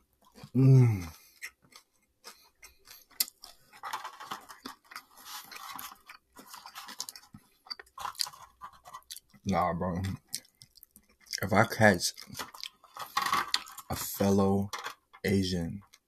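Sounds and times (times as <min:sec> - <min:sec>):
chewing: 0:00.2 - 0:09.4, 0:10.0 - 0:11.5, 0:12.1 - 0:13.9
person humming: 0:00.6 - 0:01.1
plastic rustling: 0:03.4 - 0:09.2, 0:12.2 - 0:15.1.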